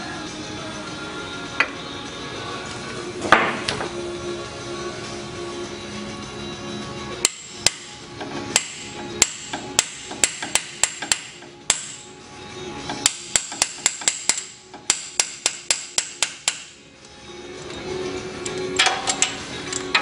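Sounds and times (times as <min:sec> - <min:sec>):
hammer tapping on metal tool: 0:07.2 - 0:11.9, 0:12.9 - 0:16.7.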